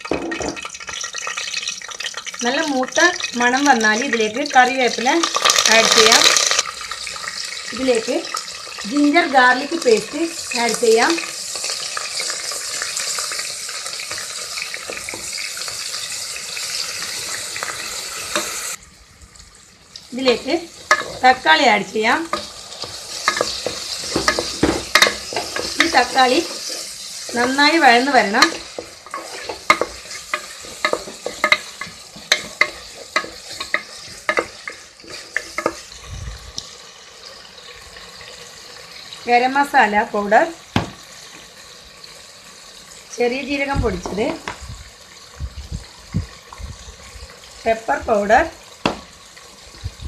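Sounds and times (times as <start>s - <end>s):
paste frying in hot oil: 0.0s - 50.0s
spatula scraping and tapping pot: 20.3s - 21.3s, 22.3s - 35.9s
spatula knocking against pot: 29.5s - 34.5s.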